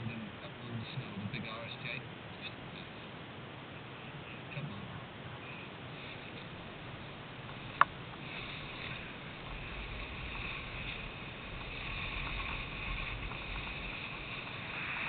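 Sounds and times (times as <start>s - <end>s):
low rumble: 6.4s - 15.0s
snowboard scraping over snow: 7.5s - 15.0s.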